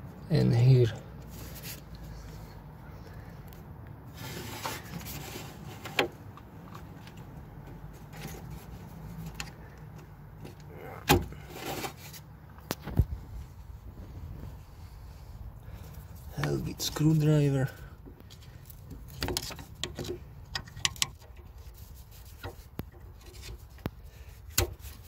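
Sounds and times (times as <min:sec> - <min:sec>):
hands scraping plastic parts: 0:18.1 - 0:25.0.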